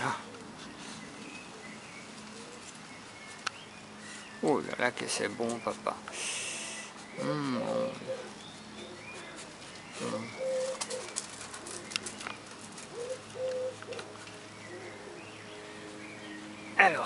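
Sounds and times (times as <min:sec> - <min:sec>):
pigeon cooing: 0:00.0 - 0:02.7, 0:06.4 - 0:15.4.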